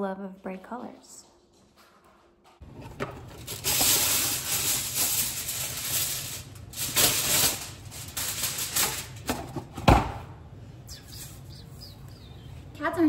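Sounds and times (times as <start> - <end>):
aluminum foil crinkling: 2.7 - 9.5.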